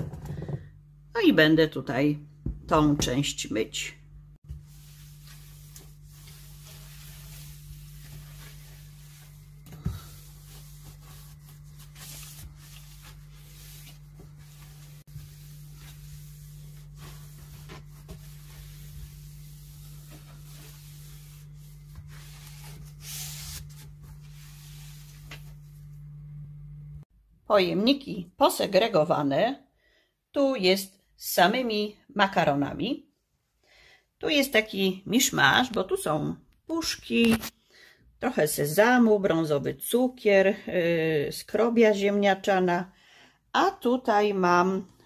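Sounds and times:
cloth wiping a shelf: 4.4 - 26.0.

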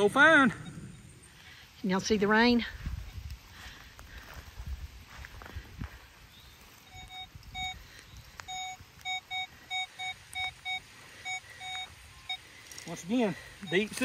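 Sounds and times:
metal detector beeps: 0.0 - 1.2, 6.7 - 14.0.

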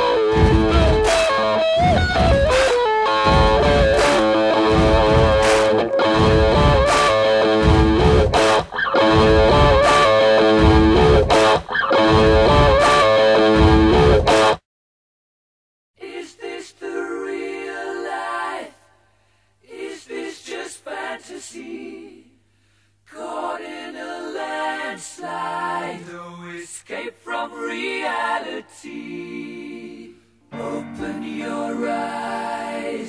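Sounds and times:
a cappella singing: 16.0 - 19.0, 19.6 - 22.4, 23.1 - 33.0.

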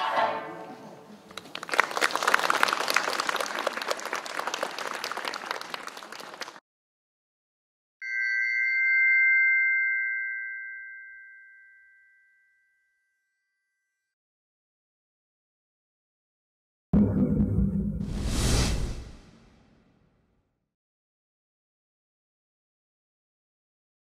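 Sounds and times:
applause: 1.3 - 6.6
two-tone chime: 8.0 - 13.7.

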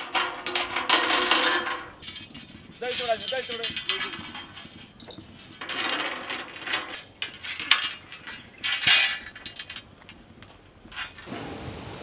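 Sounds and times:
metal utensils clattering and scraping: 0.0 - 9.8.

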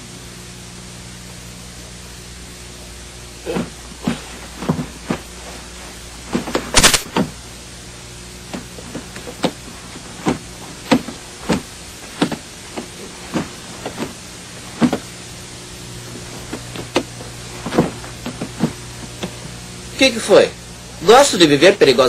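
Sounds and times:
suitcases thumping: 3.4 - 7.4, 8.4 - 15.2, 16.0 - 19.6.

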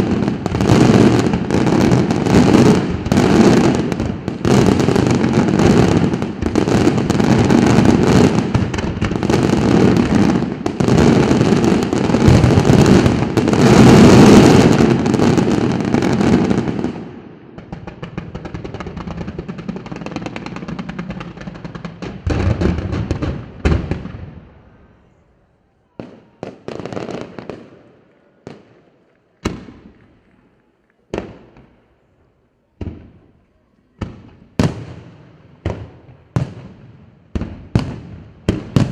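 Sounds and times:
firework bursts bangs: 0.0 - 25.1, 34.0 - 38.9
firework crackling: 0.0 - 25.1, 37.4 - 38.9.

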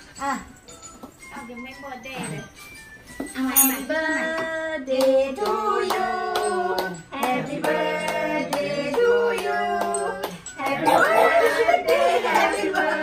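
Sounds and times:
people singing together: 3.9 - 13.0
hands clapping: 5.0 - 10.8.

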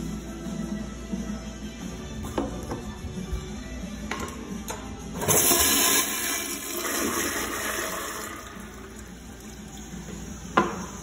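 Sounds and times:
water rushing down bowl: 5.2 - 9.8
toilet flushing: 5.2 - 10.2.

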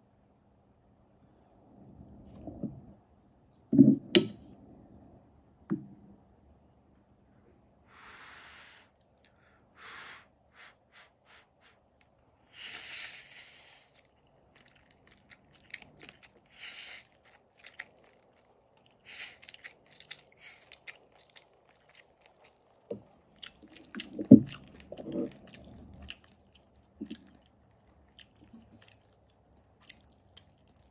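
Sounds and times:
spaghetti in sauce squishing: 13.8 - 30.9.

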